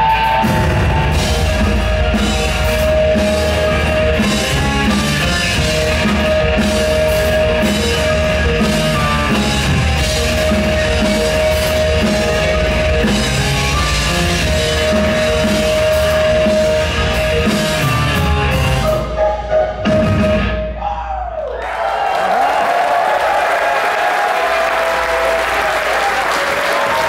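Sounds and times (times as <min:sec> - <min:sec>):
fast busy drumming: 0:00.0 - 0:19.1
live rock band playing: 0:00.0 - 0:20.8.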